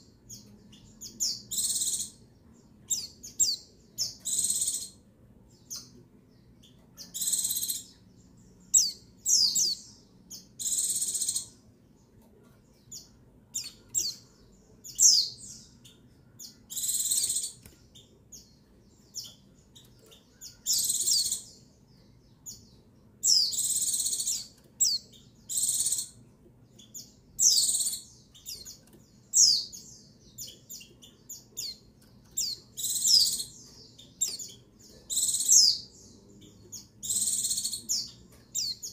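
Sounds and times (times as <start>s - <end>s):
bird chirping high and thin: 0.3s - 2.2s, 2.9s - 5.0s, 7.0s - 8.0s, 8.7s - 11.6s, 14.9s - 18.1s, 19.2s - 21.6s, 23.2s - 26.2s, 26.8s - 35.9s, 36.8s - 38.9s.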